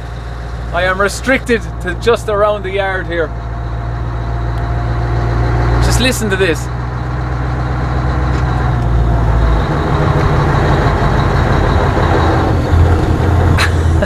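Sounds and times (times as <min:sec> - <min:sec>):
diesel truck engine from cab: 0:00.0 - 0:14.0.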